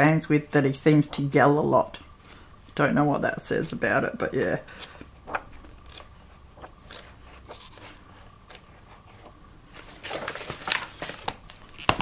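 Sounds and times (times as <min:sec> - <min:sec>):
atlas pages being turned: 0:04.3 - 0:12.0
papery rustle and flap: 0:09.7 - 0:12.0.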